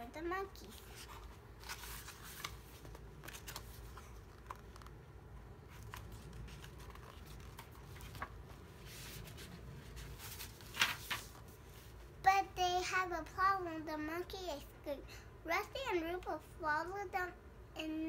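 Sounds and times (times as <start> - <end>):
book pages rustling: 0.5 - 12.0.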